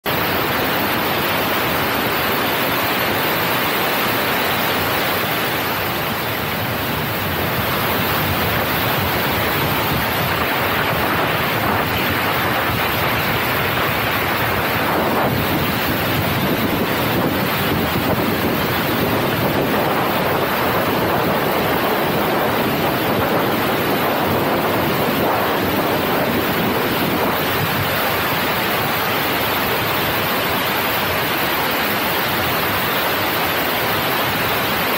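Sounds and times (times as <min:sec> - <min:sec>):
wind rushing over microphone: 0:00.0 - 0:34.9.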